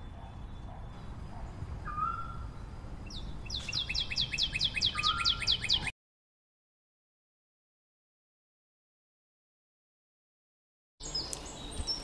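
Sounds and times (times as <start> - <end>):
robin singing: 0.0 - 5.9, 11.0 - 12.0.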